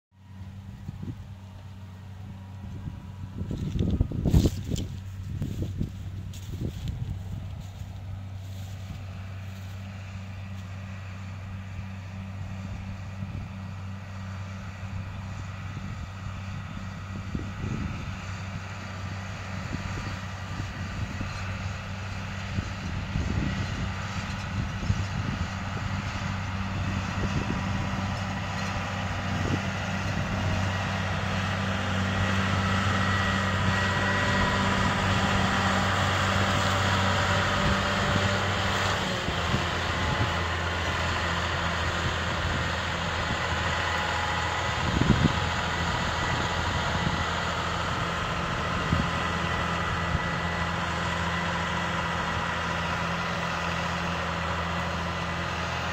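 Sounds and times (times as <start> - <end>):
combine harvester diesel engine: 0.1 - 55.9
low engine hum: 0.1 - 55.9
high mechanical whine: 14.8 - 50.7.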